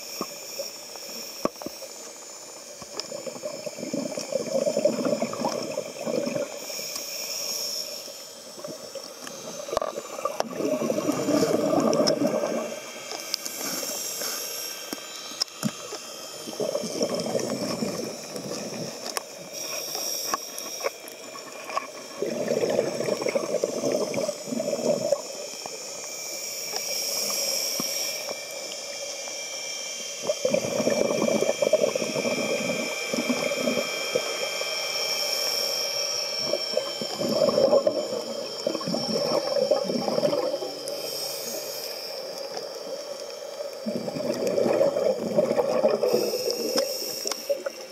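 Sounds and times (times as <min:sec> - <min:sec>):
high-pitched underwater whine: 0:00.0 - 0:47.9
regulator inhaling hiss: 0:00.0 - 0:47.9
exhaled bubbles rumbling: 0:03.0 - 0:06.6, 0:08.6 - 0:12.8, 0:16.3 - 0:19.1, 0:21.9 - 0:25.3, 0:30.2 - 0:34.2, 0:36.4 - 0:40.8, 0:43.7 - 0:46.8.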